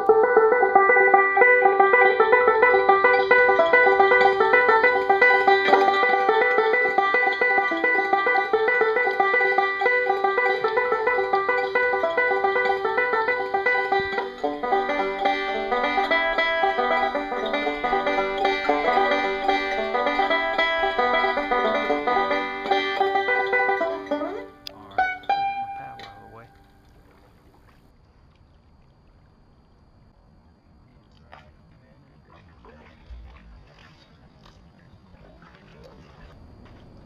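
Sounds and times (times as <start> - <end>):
instrumental music: 0.0 - 26.9.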